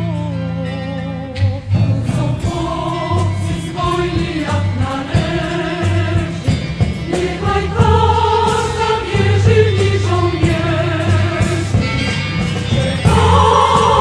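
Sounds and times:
choir holding long notes: 2.1 - 11.8, 12.8 - 14.0.

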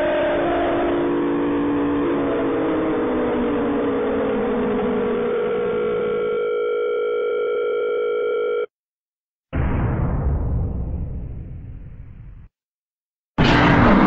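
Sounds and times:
low pitch sliding downward: 0.0 - 5.8
droning tone of held notes: 0.0 - 6.2
loud low rumbling hit: 9.6 - 12.5, 13.4 - 14.0.

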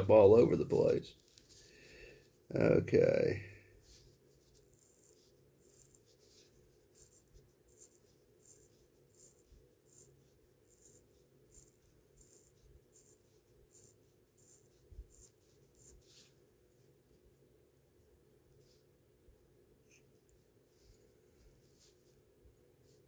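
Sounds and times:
watch winding ratchet clicks: 7.0 - 10.1, 10.7 - 15.9.

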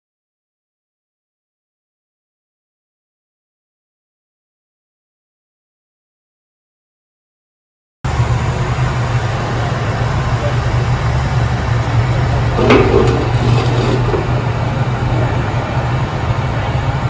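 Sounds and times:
hydraulic mechanical hum: 8.1 - 17.0
short rattle: 11.8 - 15.5
landing gear clunk: 12.6 - 14.6.

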